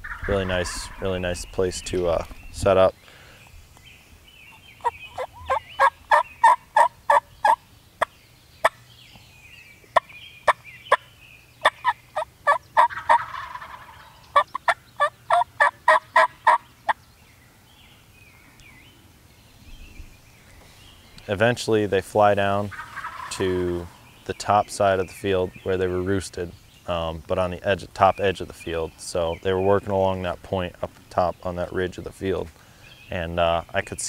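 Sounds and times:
turkeys gobbling: 0.0s - 1.2s, 4.5s - 8.1s, 11.6s - 16.6s, 22.6s - 24.1s.

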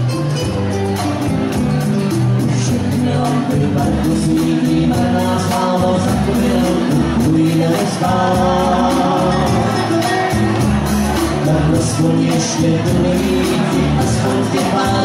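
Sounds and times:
keyboard with steady beat: 0.0s - 15.0s
woman and man singing duet: 11.4s - 15.0s.

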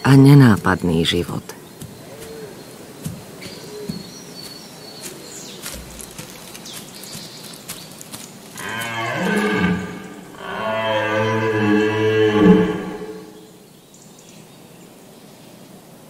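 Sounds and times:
deer stag roaring: 8.6s - 13.4s.

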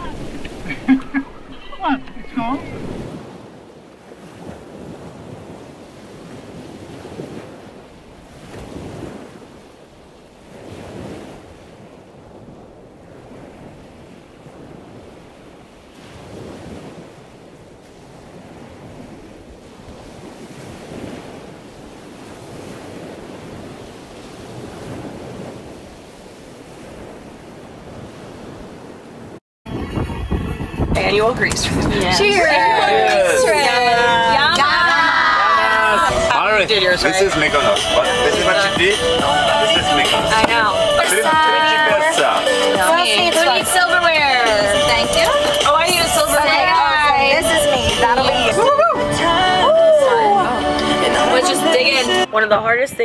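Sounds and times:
sea waves washing: 0.0s - 53.0s
wind buffeting microphone: 0.0s - 53.0s.

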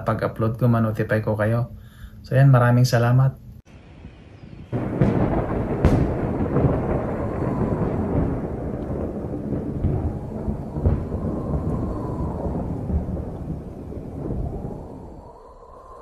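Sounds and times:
sharp thunder crack: 3.7s - 15.3s
thunder rumbling: 3.7s - 16.0s.

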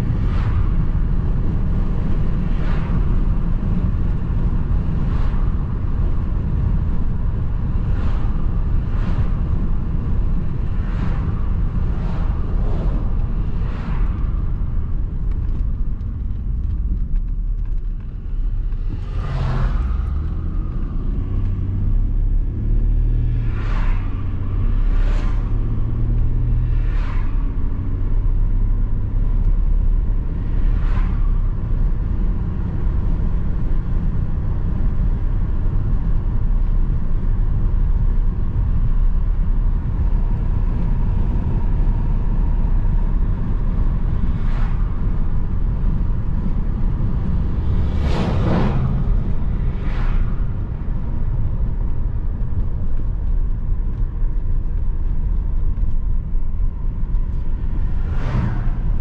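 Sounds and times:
car road and engine rumble: 0.0s - 59.0s.

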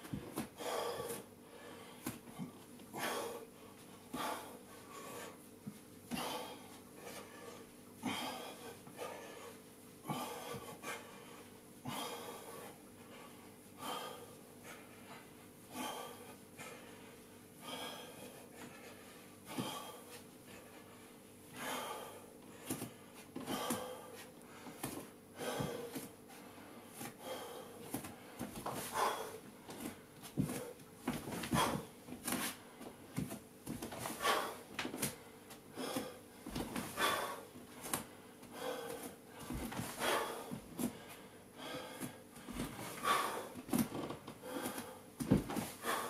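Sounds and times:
man breathing hard: 0.0s - 33.2s, 33.9s - 46.0s.

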